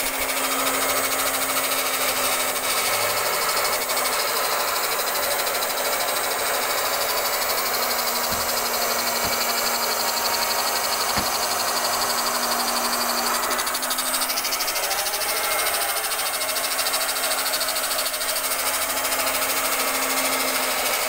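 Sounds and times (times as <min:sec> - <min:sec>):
electric cloth cutter running: 0:00.0 - 0:21.0
faint low knocks: 0:08.0 - 0:09.7.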